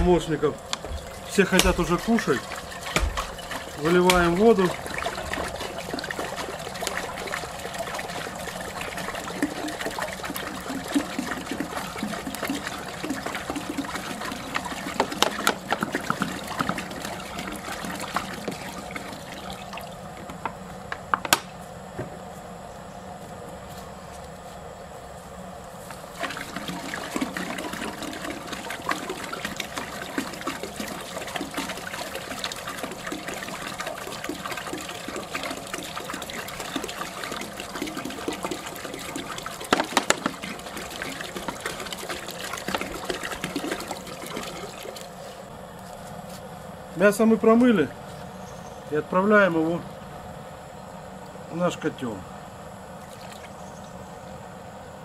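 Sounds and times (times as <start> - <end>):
water pouring into metal pot: 0.8 - 20.1, 26.2 - 45.1.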